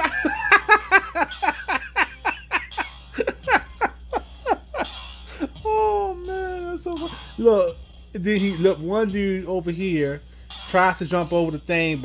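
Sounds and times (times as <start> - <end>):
man laughing hard: 0.0 - 6.1.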